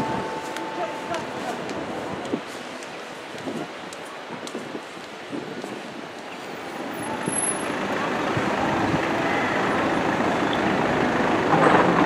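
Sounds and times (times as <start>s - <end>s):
heavy road vehicle running: 0.0s - 12.0s.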